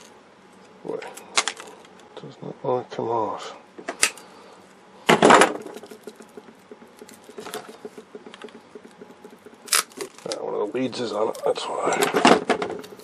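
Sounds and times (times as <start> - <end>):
pliers crunching plastic casing: 9.6 - 10.4.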